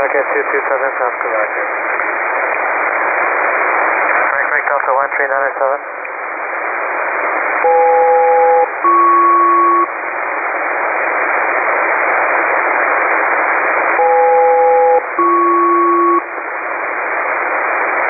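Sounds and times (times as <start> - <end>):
radio hiss: 0.0 - 18.0
two-note calling tones: 7.6 - 9.9, 14.0 - 16.3.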